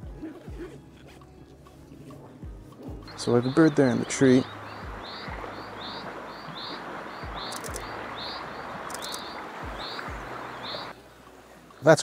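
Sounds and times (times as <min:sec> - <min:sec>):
background hiss: 0:02.7 - 0:12.0
chaffinch call notes: 0:03.1 - 0:10.9.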